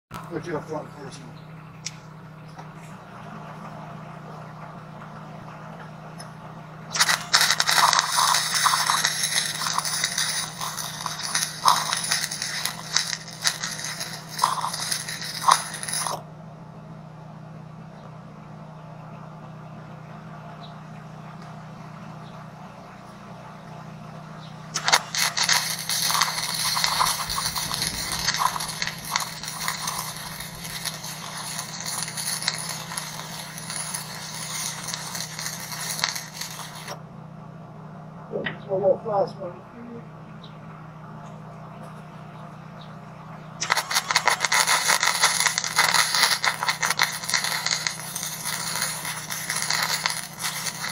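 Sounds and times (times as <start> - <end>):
steady low hum: 0.2 - 50.9
welding arc crackling and popping: 5.8 - 16.2, 24.7 - 37.0, 43.6 - 50.9.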